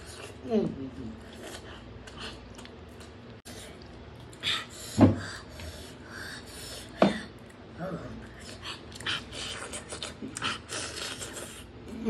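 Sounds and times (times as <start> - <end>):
chewing and wet mouth noises: 1.2 - 4.4, 7.4 - 11.9.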